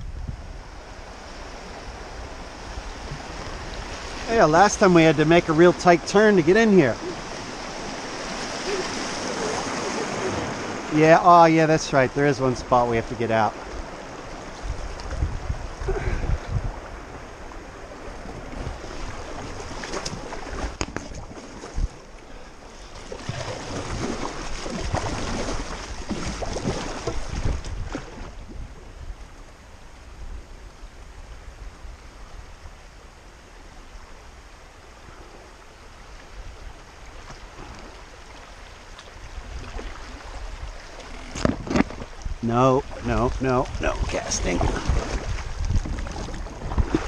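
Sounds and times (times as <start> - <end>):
wind rumble on microphone: 0.0 - 4.4, 12.5 - 22.2, 23.2 - 38.3, 38.9 - 47.0
river current rushing and splashing: 0.0 - 47.0.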